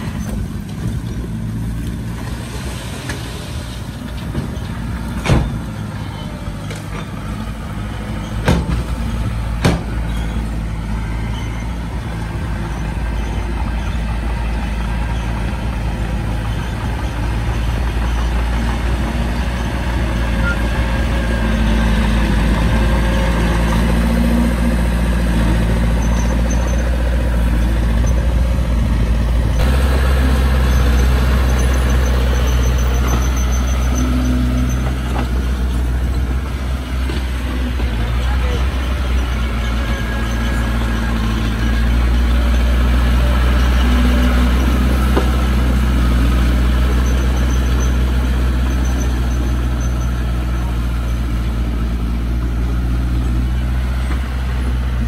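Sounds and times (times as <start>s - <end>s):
diesel machinery running: 0.0s - 55.0s
sharp knocks: 8.4s - 9.0s, 9.6s - 10.1s.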